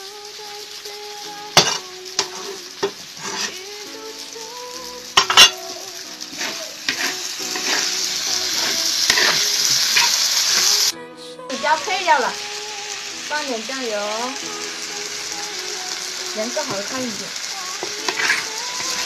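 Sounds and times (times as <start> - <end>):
food sizzling in hot oil: 0.0 - 19.0
metal spatula scraping a wok: 1.6 - 3.6, 6.3 - 10.8, 17.8 - 19.0.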